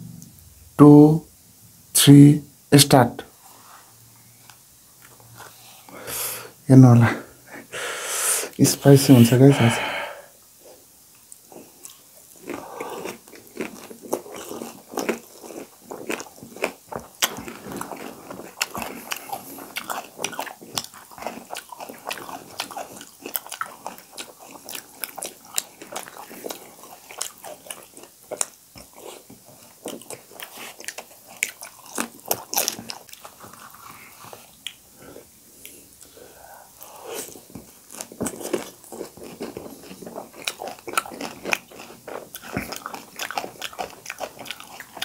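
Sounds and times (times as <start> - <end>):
chewing: 10.6 - 34.8, 35.6 - 45.0.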